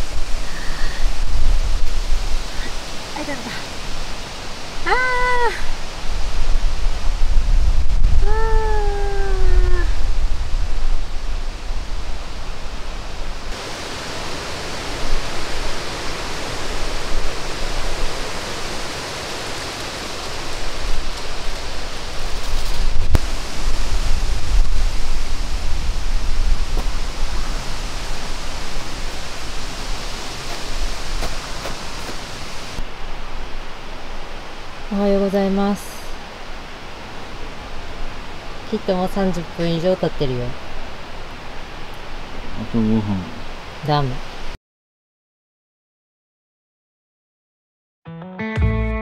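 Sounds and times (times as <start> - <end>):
wind buffeting microphone: 0.0 - 4.8, 5.6 - 13.6, 14.2 - 32.8.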